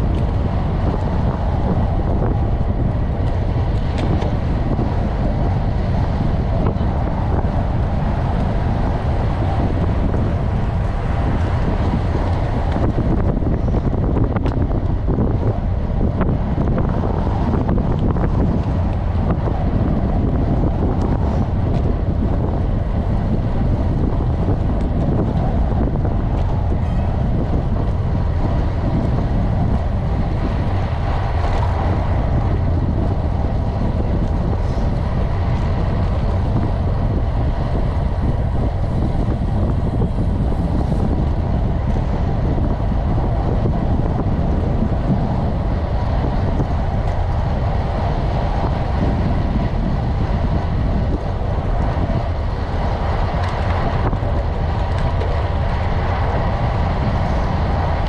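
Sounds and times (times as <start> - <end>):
tyre noise on asphalt: 0.0 - 58.0
wind rumble on microphone: 0.0 - 58.0.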